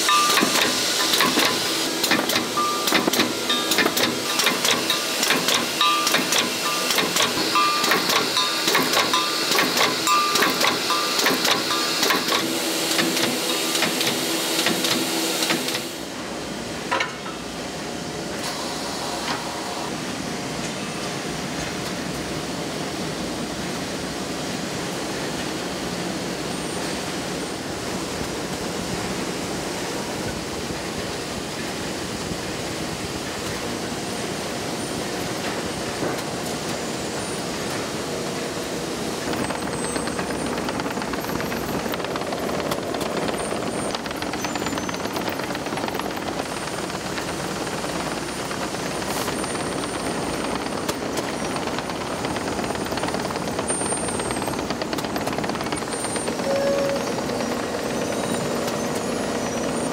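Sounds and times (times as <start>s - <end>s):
steady machine hum: 0.0s - 20.6s, 36.9s - 59.9s
dense mechanical clatter: 39.0s - 59.9s.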